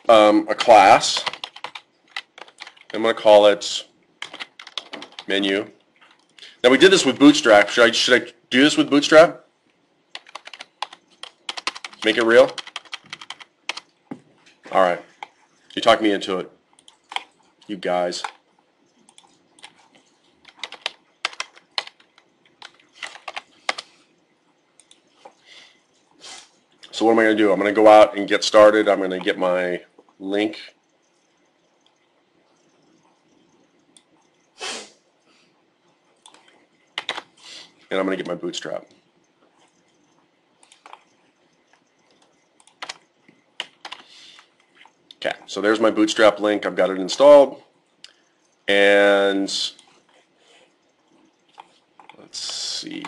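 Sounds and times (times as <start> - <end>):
typing on computer keyboard: 0.5 - 3.0, 4.2 - 5.4, 10.1 - 14.0, 18.2 - 23.9, 36.2 - 37.3, 40.6 - 45.0.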